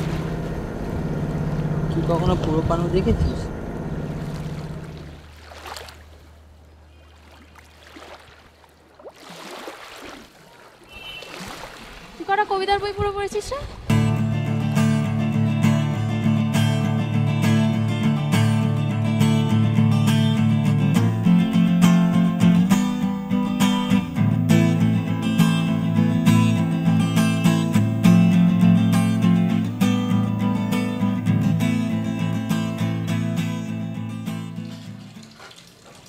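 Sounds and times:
acoustic guitar strummed chords: 0:13.9 - 0:35.1.

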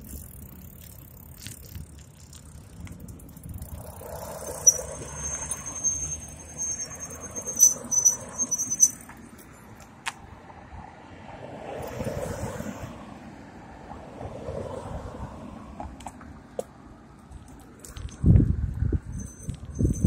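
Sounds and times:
road and traffic noise: 0:00.0 - 0:20.0
bike brakes squealing: 0:03.5 - 0:09.2.

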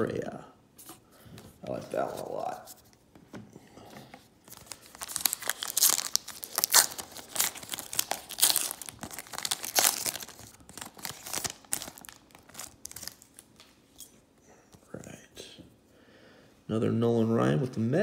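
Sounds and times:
foil wrapper crinkling: 0:04.5 - 0:13.6.

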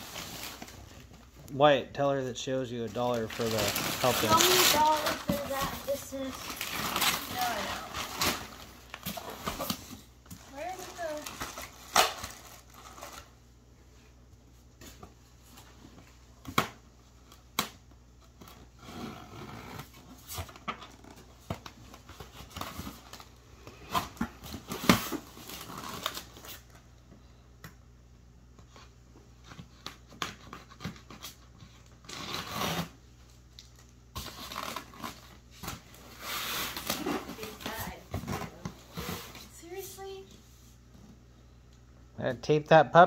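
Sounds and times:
wrapping paper rustling: 0:02.8 - 0:13.4
styrofoam blocks squeaking: 0:03.0 - 0:09.8.

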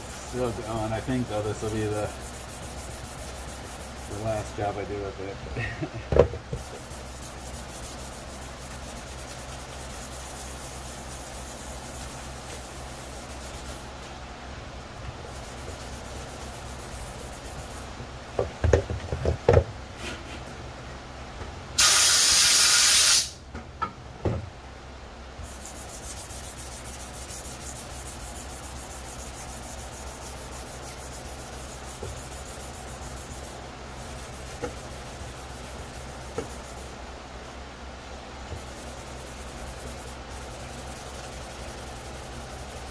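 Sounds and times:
sanding sponge scrubbing plastic: 0:00.0 - 0:04.9, 0:06.5 - 0:13.9, 0:15.3 - 0:17.9, 0:25.4 - 0:37.0, 0:38.6 - 0:42.9
loud hiss: 0:21.8 - 0:23.4.

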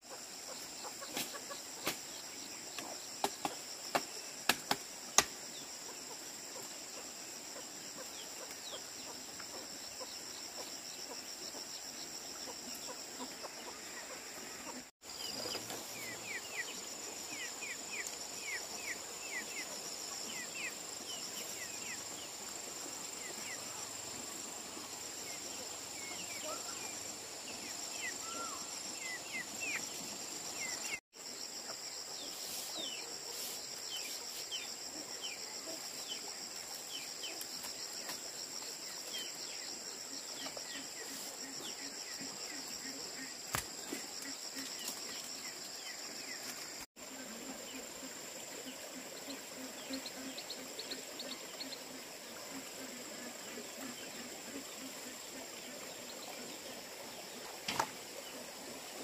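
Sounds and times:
insects droning: 0:00.0 - 0:59.0.

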